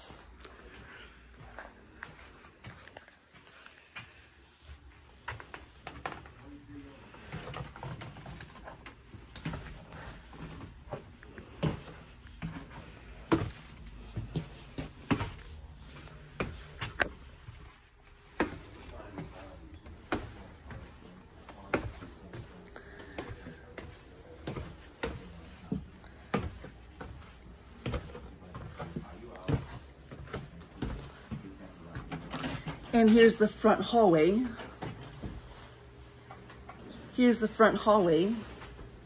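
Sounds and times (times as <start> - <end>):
footsteps on stairs and wooden floor: 0.0 - 39.0.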